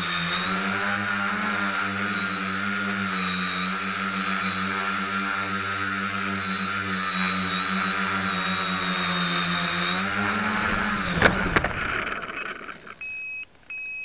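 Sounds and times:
quadcopter motors humming: 0.0 - 13.4
short electronic beep: 12.4 - 14.0.

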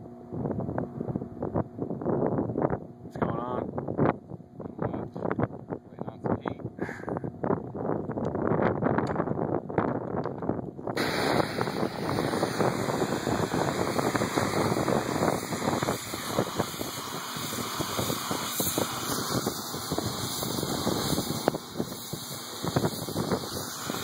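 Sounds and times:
pressure washer spraying water: 11.0 - 24.0.

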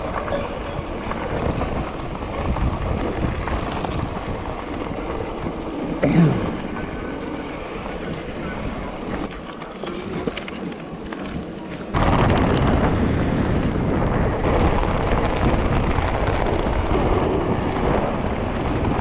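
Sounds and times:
bike clicks and rattles: 0.0 - 14.4
wind buffeting microphone: 0.0 - 19.0
deep rumbling roar: 12.0 - 19.0.

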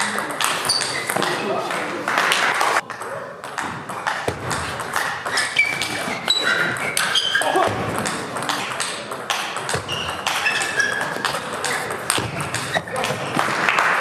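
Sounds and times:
shoes squeaking on floor: 0.4 - 1.5, 4.0 - 7.8, 9.6 - 13.5
ping pong ball clicking: 8.0 - 12.8.

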